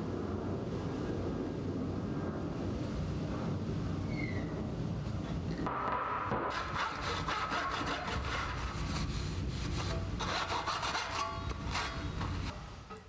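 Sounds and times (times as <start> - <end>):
rag scrubbing saw blade: 6.5 - 9.0, 9.7 - 12.1.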